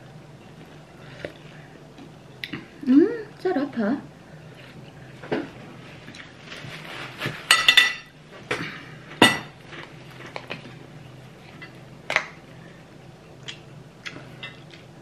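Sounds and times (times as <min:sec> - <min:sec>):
cutlery clinking on ceramic plates: 0:07.5 - 0:08.1.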